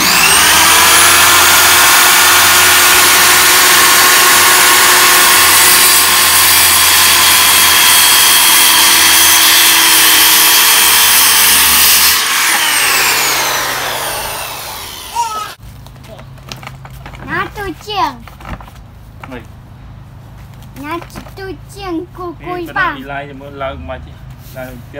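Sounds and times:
circular saw cutting wood: 0:00.0 - 0:15.6
saw blade spinning down: 0:00.0 - 0:15.6.

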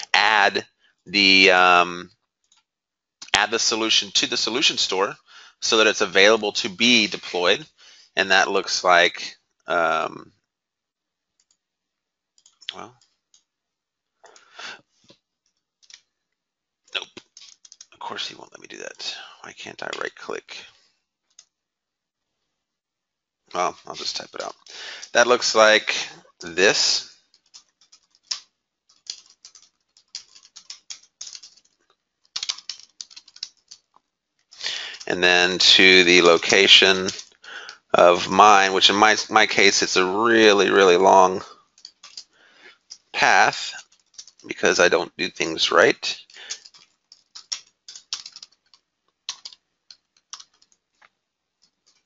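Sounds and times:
computer keyboard typing: 0:11.4 - 0:11.6, 0:12.4 - 0:13.5, 0:17.0 - 0:18.1, 0:21.3 - 0:21.5, 0:23.5 - 0:35.6, 0:36.2 - 0:37.8, 0:41.8 - 0:44.6, 0:46.2 - 0:50.8.

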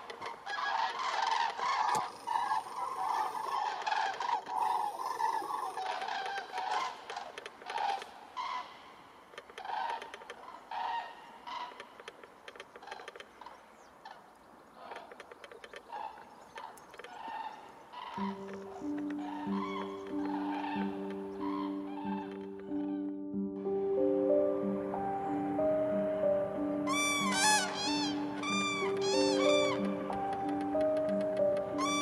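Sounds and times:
cranes calling in flight: 0:00.0 - 0:08.6, 0:31.8 - 0:32.0.

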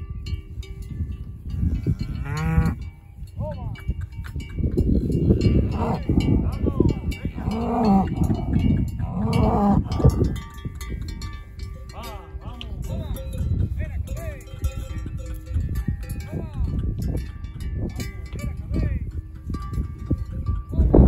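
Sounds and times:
steady low rumble: 0:00.0 - 0:21.0
cattle mooing: 0:01.8 - 0:02.8, 0:05.6 - 0:06.2, 0:07.3 - 0:10.2.

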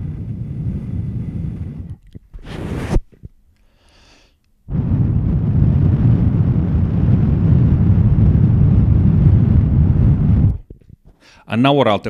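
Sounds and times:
breath blowing into microphone: 0:00.0 - 0:11.5.

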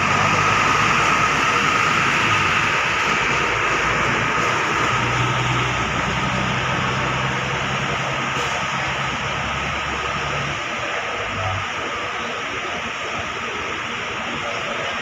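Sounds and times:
bus diesel engine drone: 0:00.0 - 0:15.0
tyres hissing on wet pavement: 0:00.0 - 0:15.0.

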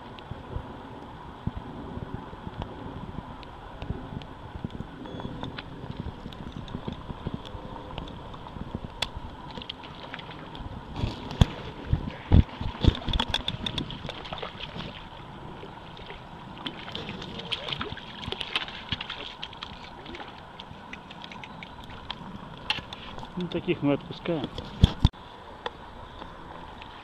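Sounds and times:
fish splashing in water: 0:12.3 - 0:22.1.

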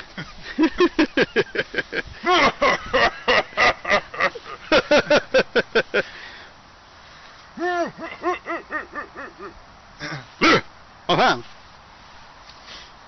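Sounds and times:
man repeating nonsense syllables: 0:07.6 - 0:10.7.

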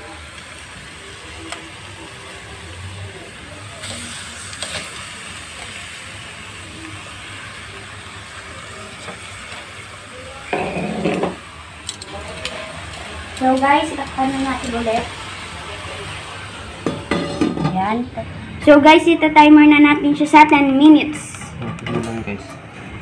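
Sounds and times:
meat sizzling in a skillet: 0:00.0 - 0:18.0.

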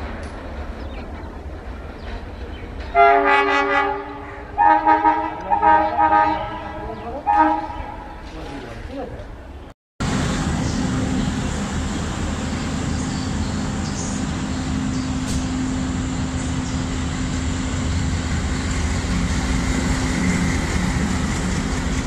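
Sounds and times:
diesel locomotive engine drone: 0:00.0 - 0:08.4, 0:09.3 - 0:22.0.

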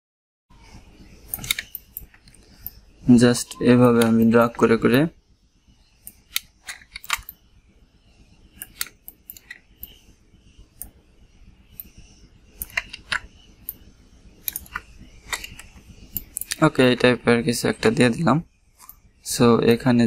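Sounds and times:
faint low hum: 0:00.5 - 0:20.0
computer mouse clicking: 0:00.6 - 0:02.8, 0:03.8 - 0:05.0, 0:06.0 - 0:07.4, 0:08.5 - 0:10.1, 0:11.7 - 0:17.0, 0:18.8 - 0:19.0.

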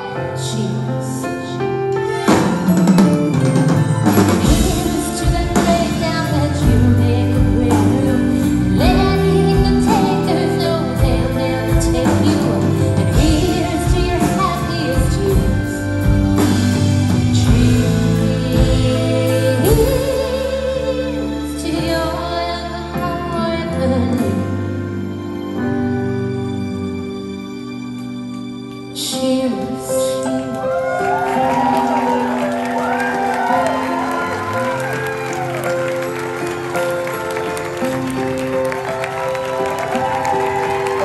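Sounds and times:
live pop band playing: 0:00.0 - 0:41.0
woman singing lead: 0:04.0 - 0:25.0, 0:29.0 - 0:35.2.

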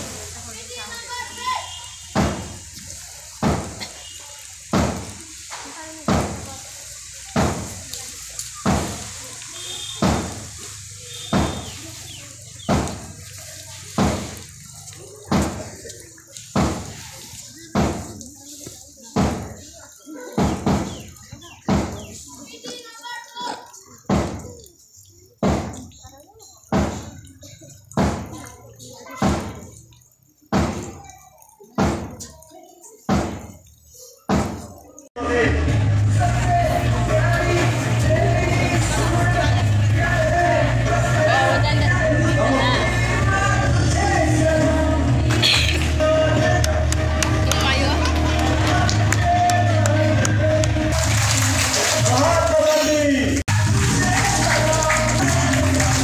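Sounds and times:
drum beating slowly: 0:04.7 - 0:06.6, 0:07.3 - 0:07.9, 0:08.6 - 0:09.2, 0:10.0 - 0:19.6, 0:20.3 - 0:22.2, 0:26.7 - 0:27.3
loud music: 0:35.2 - 0:52.6, 0:53.5 - 0:56.0.

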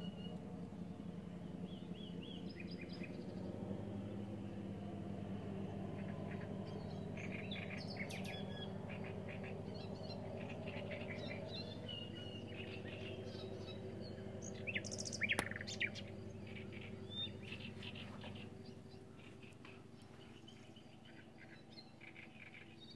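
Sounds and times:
low steady hum: 0:00.0 - 0:22.9
nightingale singing: 0:05.9 - 0:22.9.

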